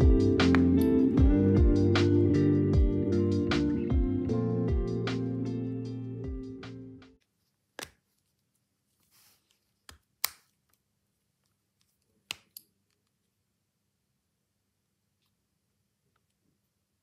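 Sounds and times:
soft rustle: 7.2s - 9.9s.

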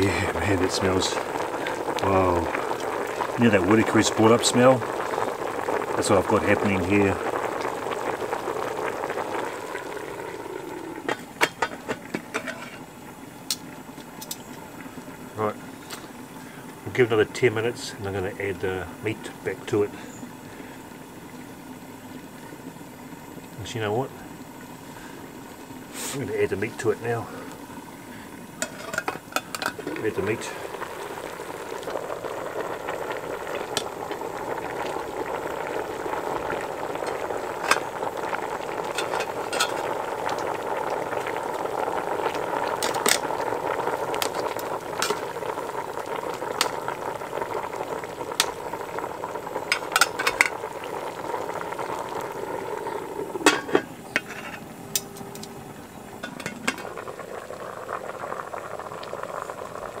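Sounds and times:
pot bubbling at a boil: 0.0s - 60.0s.

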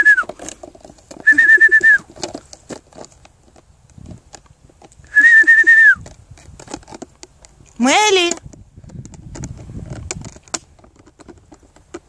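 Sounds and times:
trilling whistle blasts: 0.0s - 0.3s, 1.2s - 2.0s, 5.1s - 6.0s.

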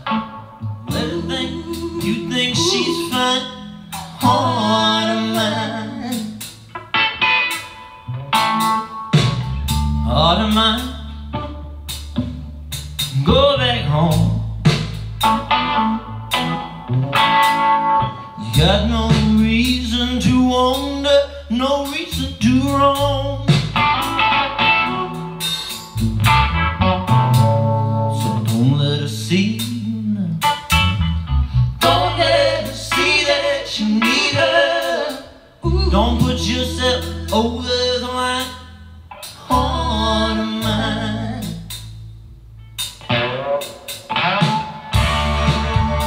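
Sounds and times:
deep sustained bass line: 0.0s - 6.4s, 9.2s - 17.2s, 18.0s - 34.0s, 35.6s - 42.8s, 45.0s - 46.0s
blues-rock song: 0.0s - 46.0s
drums: 0.0s - 46.0s
guitar: 0.0s - 46.0s
man singing: 0.8s - 6.5s, 10.0s - 11.3s, 13.1s - 14.6s, 18.4s - 23.8s, 28.1s - 30.7s, 31.8s - 41.8s.

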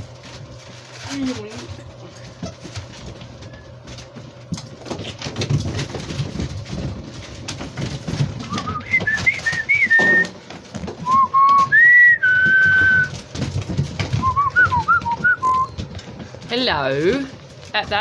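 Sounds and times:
puppies playing with toys: 0.0s - 18.0s
person whistling a tune: 8.6s - 10.3s, 11.0s - 13.1s, 14.2s - 15.7s.

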